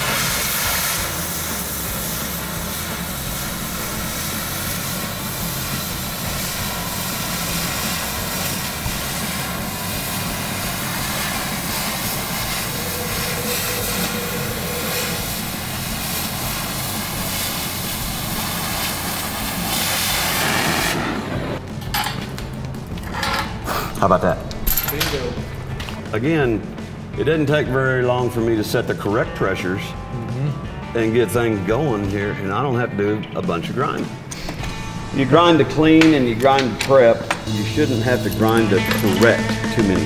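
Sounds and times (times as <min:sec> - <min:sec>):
cutting torch ripping rush: 0:00.0 - 0:21.6.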